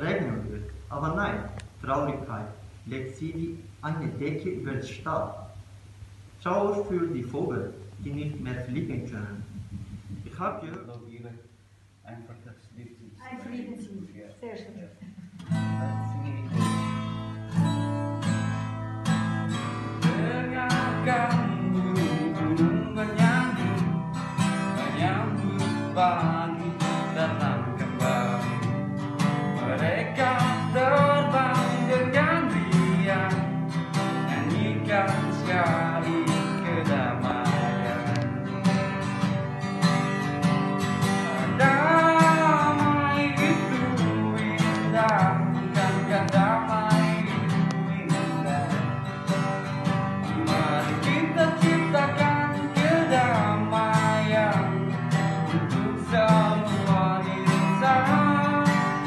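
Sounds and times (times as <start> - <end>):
acoustic guitar strumming: 0.0 - 10.5, 15.2 - 59.0
man singing: 19.8 - 24.0, 24.7 - 28.6, 29.5 - 39.0, 41.1 - 59.0.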